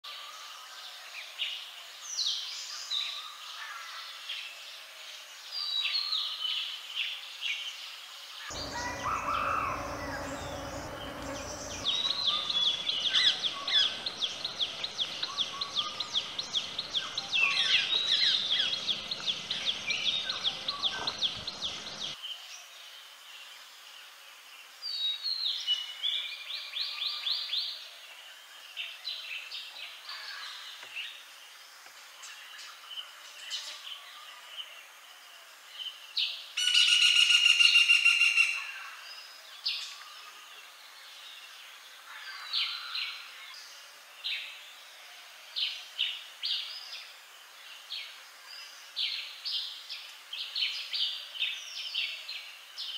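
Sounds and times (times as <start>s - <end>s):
birds chirping and calling: 8.5s - 16.9s.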